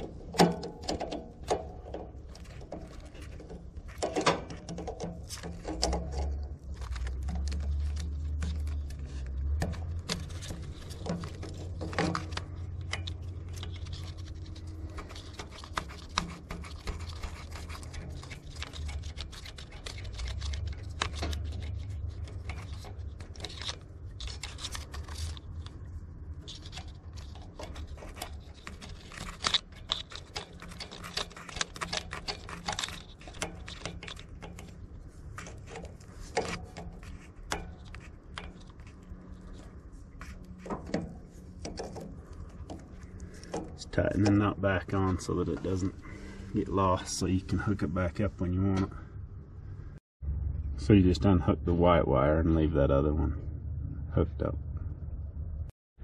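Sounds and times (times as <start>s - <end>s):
pliers clicking and scraping metal: 0.0s - 44.6s
low rumble: 45.5s - 55.7s.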